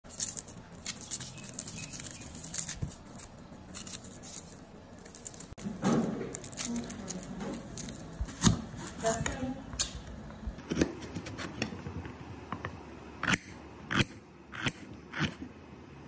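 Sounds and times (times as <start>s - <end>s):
knife scraping onion: 0.0s - 5.6s, 13.2s - 15.4s
onion skin tearing rustle: 0.0s - 9.4s
onion skin crackling: 0.0s - 9.9s.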